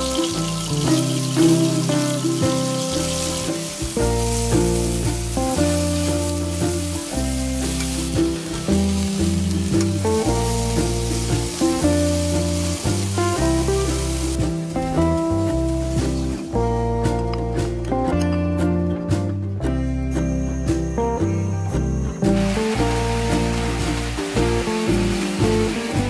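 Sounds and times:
eggplant sizzling in a pan: 0:00.0 - 0:16.5, 0:22.4 - 0:26.0
background music with bass: 0:00.0 - 0:26.0.

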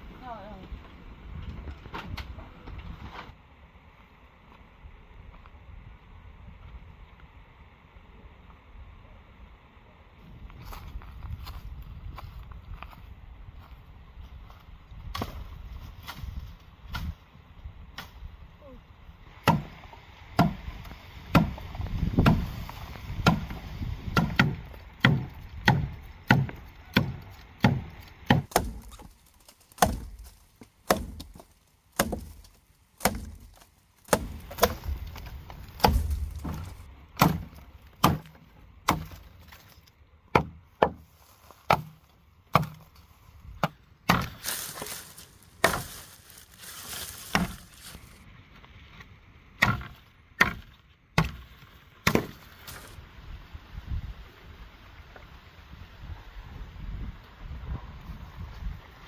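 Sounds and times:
machete chopping bamboo: 0:19.4 - 0:19.8, 0:20.4 - 0:22.5, 0:23.2 - 0:42.9, 0:43.6 - 0:46.1, 0:47.1 - 0:48.0, 0:49.6 - 0:52.9
rustling: 0:28.4 - 0:36.9, 0:41.0 - 0:48.2, 0:51.4 - 0:53.0.

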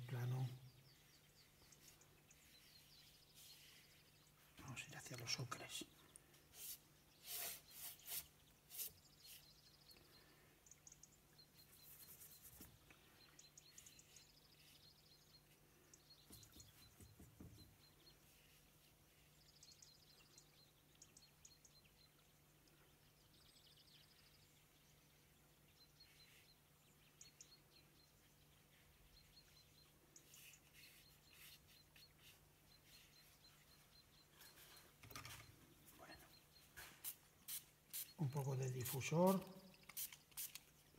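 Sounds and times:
faint bird chirps: 0:00.0 - 0:40.9
paintbrush scrubbing: 0:06.5 - 0:09.4, 0:30.3 - 0:33.4.

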